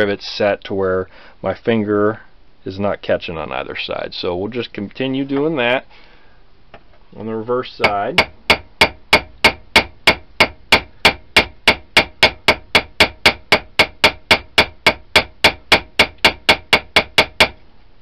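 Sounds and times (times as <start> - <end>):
hammer tapping on a rivet: 7.8 - 17.6.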